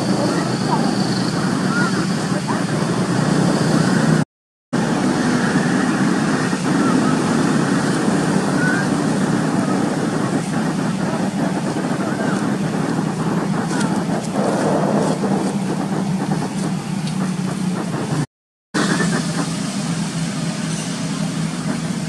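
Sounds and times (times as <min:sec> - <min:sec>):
faint voices: 0:00.0 - 0:04.2, 0:04.9 - 0:18.2
low motor hum: 0:04.8 - 0:22.0.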